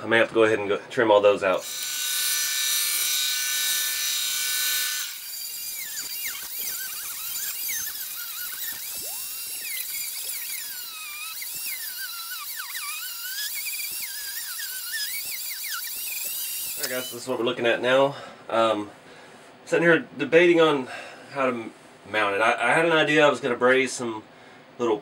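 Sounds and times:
rotary tool grinding plastic: 1.5 - 17.4
band saw running: 1.6 - 17.3.

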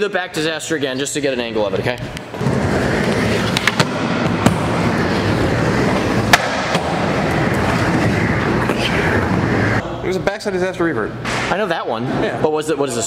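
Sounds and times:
skateboard wheels rumbling: 2.3 - 9.8.

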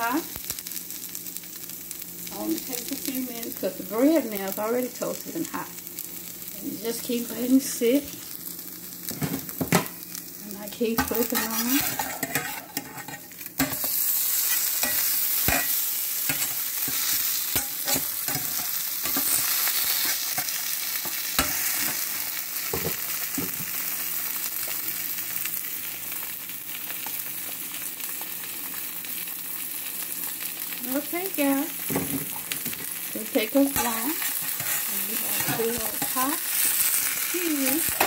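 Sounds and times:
sandwich sizzling in frying pan: 0.0 - 38.0
metal spatula scraping pan: 11.0 - 20.5, 33.7 - 36.6.

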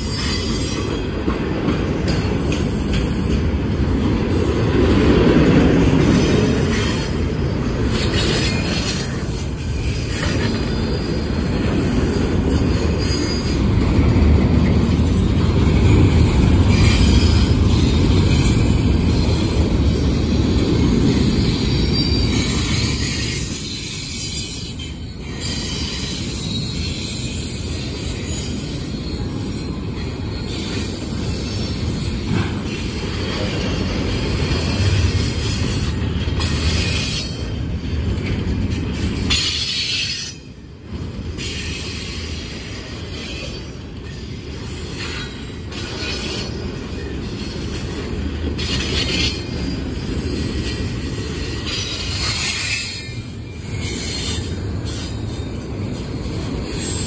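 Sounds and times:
train wheels rumbling on track: 0.0 - 57.0
wheel squeal: 12.5 - 13.7, 21.1 - 33.4.

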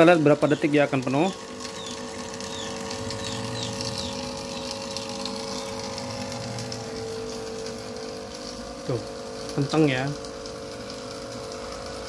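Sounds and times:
water streaming into bottle: 0.0 - 9.4
water pump motor hum: 0.0 - 12.0.

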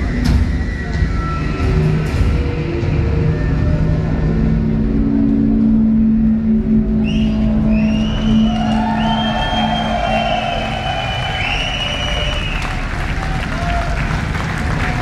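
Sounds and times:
low drone: 0.0 - 13.5
industrial electronic music: 0.0 - 15.0
audience whistling and cheering: 6.9 - 15.0.

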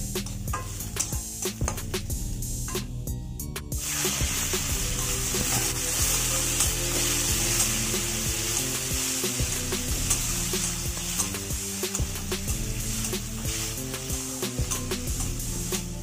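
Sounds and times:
tomatoes sizzling in hot oil: 0.0 - 3.1, 3.7 - 16.0
steel spatula scraping pan: 0.2 - 1.6, 4.8 - 16.0.

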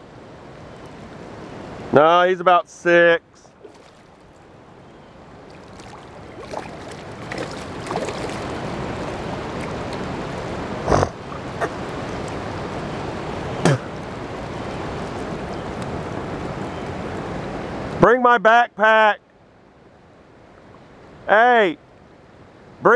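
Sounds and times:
rushing water: 0.0 - 18.0
fish splashing at surface: 3.6 - 4.4, 5.5 - 10.0.

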